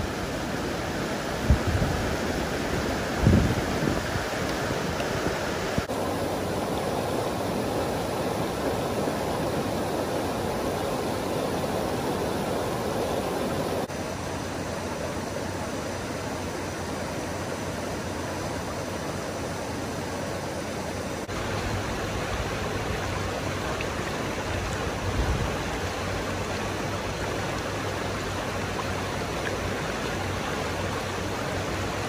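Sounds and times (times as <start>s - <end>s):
flood water rushing: 0.0s - 32.0s.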